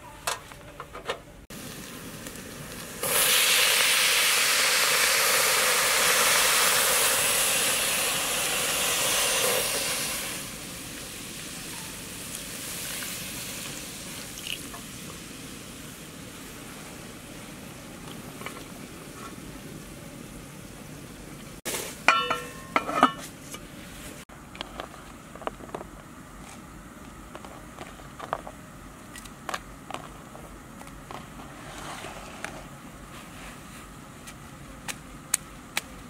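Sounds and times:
pot lid clanking: 22.1 - 23.3.

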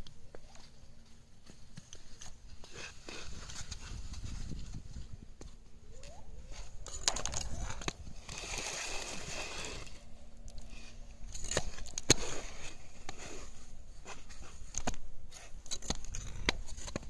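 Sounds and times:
skate blades scraping on ice: 8.1 - 10.0, 10.7 - 14.6.

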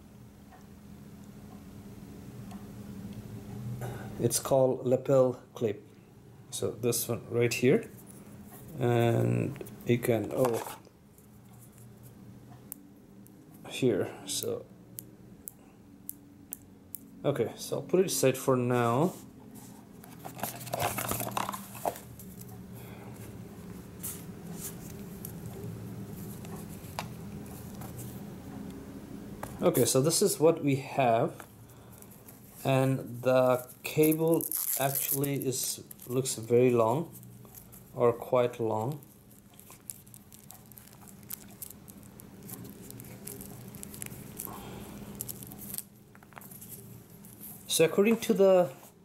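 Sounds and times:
steady low hum: 0.0 - 49.0
microphone cable rustling: 9.5 - 12.1, 19.1 - 22.6, 31.4 - 49.0.

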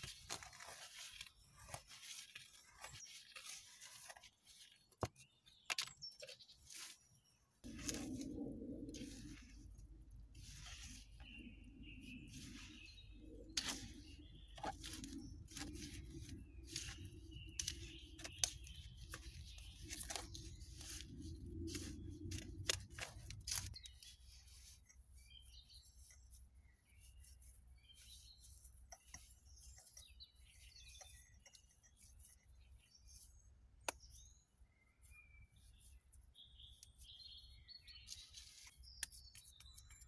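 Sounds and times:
soft dabbing of mortar: 0.0 - 40.0
hands squelching in wet mortar: 7.6 - 32.4
faint bird chirps: 10.4 - 22.0, 23.7 - 40.0.

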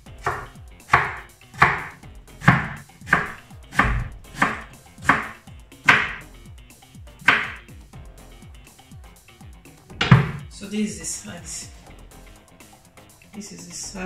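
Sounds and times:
knife chopping potato on board: 0.2 - 6.2, 7.2 - 7.6, 10.0 - 10.5.

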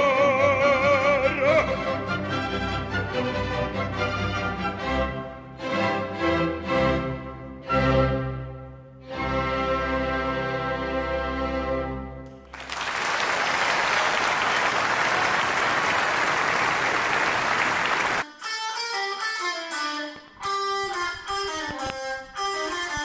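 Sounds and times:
applause: 12.4 - 18.2.

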